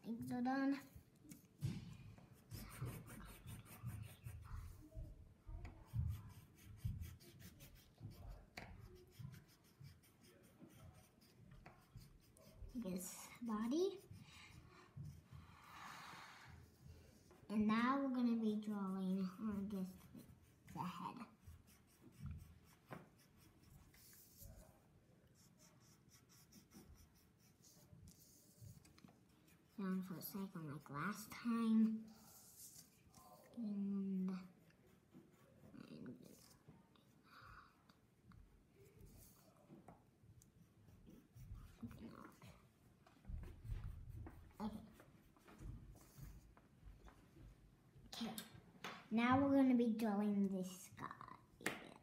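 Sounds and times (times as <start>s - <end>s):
colored pencil scratching on paper: 0.0s - 37.2s, 38.3s - 46.6s.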